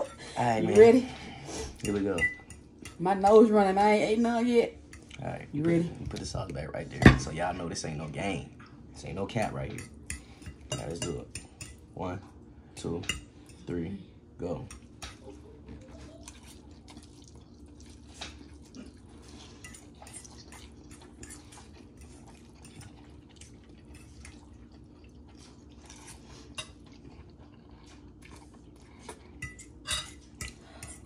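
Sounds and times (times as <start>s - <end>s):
forks clinking and scraping on plates: 1.7s - 3.0s, 9.7s - 11.8s, 19.3s - 24.4s, 29.1s - 31.0s.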